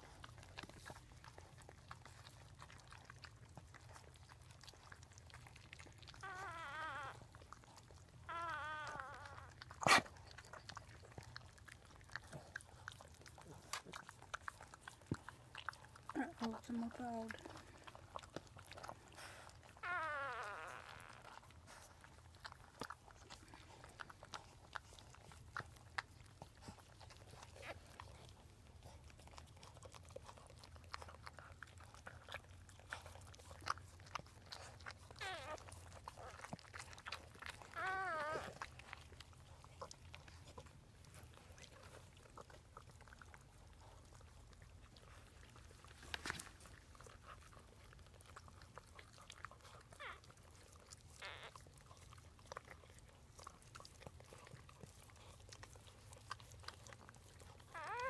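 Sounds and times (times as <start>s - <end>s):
wet licking and smacking: 0.0s - 58.0s
puppy squealing: 6.1s - 7.4s, 8.2s - 10.0s, 19.6s - 21.5s, 35.0s - 38.8s, 49.9s - 50.3s, 51.1s - 51.7s, 57.7s - 58.0s.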